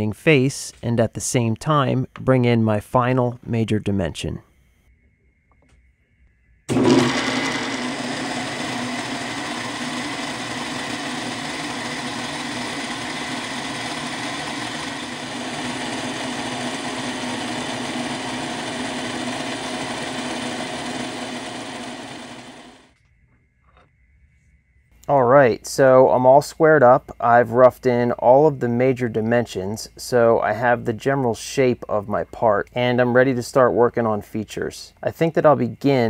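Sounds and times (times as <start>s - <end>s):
milling machine cutting metal: 6.7s - 22.9s.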